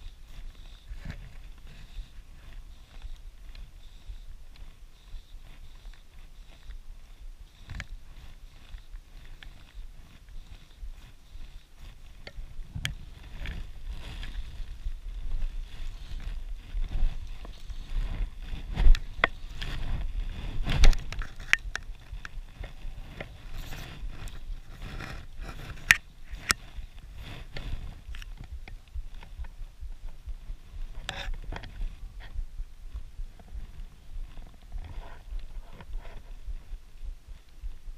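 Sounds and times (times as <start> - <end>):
wind rumbling on microphone: 0.0 - 37.9.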